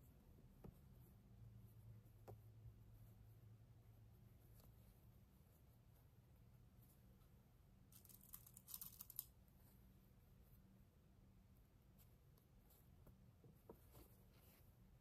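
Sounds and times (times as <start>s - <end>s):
faint crackly rustling of fabric: 0.0s - 15.0s
low steady hum: 0.0s - 15.0s.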